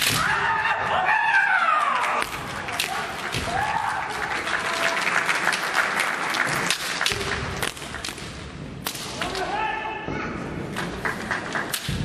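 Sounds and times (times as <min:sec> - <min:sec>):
people clapping: 0:01.4 - 0:08.3, 0:10.8 - 0:12.0.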